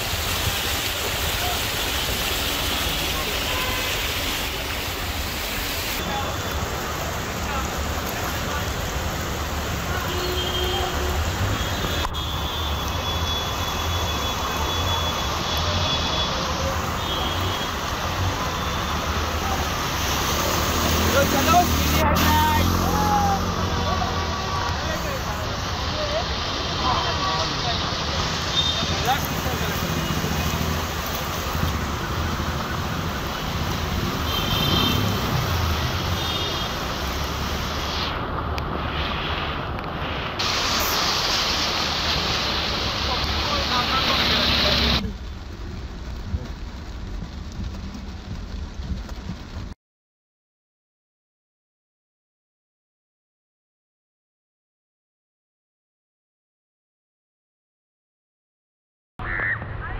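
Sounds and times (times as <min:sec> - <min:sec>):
heavy rain: 0:00.0 - 0:49.8, 0:59.2 - 0:59.9
car driving through water: 0:12.8 - 0:49.6.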